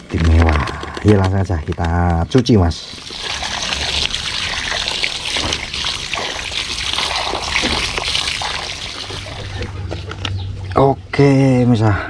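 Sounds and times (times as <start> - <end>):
water running and splashing: 2.5 - 10.2.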